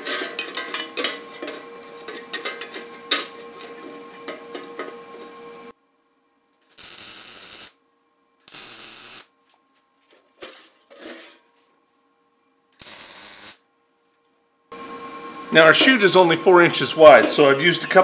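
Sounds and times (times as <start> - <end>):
welder tack welding bursts: 6.6 - 7.8, 8.4 - 9.3, 12.8 - 13.6.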